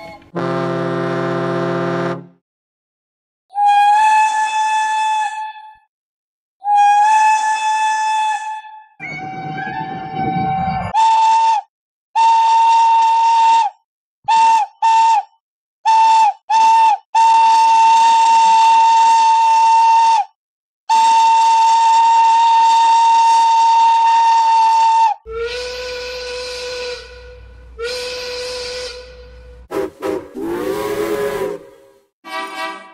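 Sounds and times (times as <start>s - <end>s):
lower steam whistle: 0.0s - 2.3s, 3.6s - 5.8s, 6.6s - 8.8s, 10.9s - 15.3s, 15.9s - 20.3s, 20.9s - 32.8s
high steam whistle toots: 10.9s - 15.3s, 15.9s - 20.3s, 20.9s - 32.8s.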